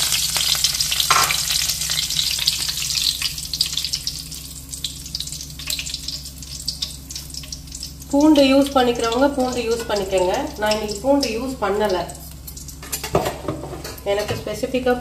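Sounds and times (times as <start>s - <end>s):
leaves sizzling in hot oil: 0.0s - 15.0s.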